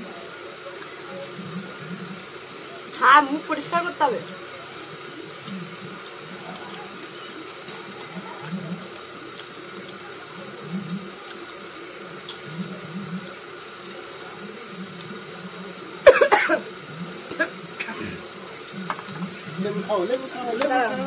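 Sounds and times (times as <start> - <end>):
person coughing: 16.1 - 16.6.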